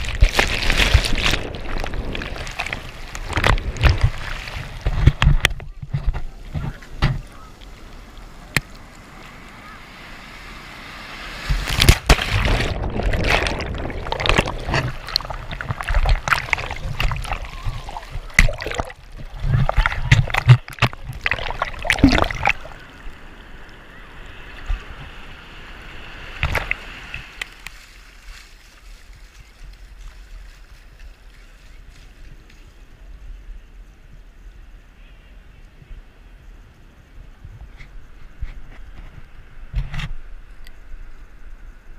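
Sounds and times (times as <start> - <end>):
soft wash of water: 0.0 - 33.5
surf waves breaking and splashing: 0.0 - 33.9.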